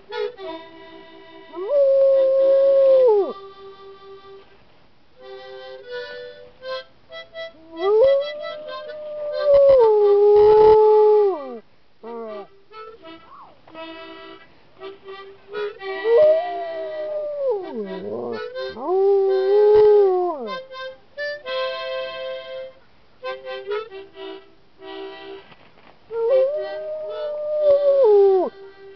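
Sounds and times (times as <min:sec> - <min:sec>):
harmonica chords and runs: 0:00.1 - 0:01.6, 0:05.2 - 0:07.8, 0:12.5 - 0:16.4, 0:20.5 - 0:25.6
dog howling: 0:01.6 - 0:03.4, 0:07.6 - 0:12.5, 0:16.0 - 0:20.6, 0:26.1 - 0:28.6.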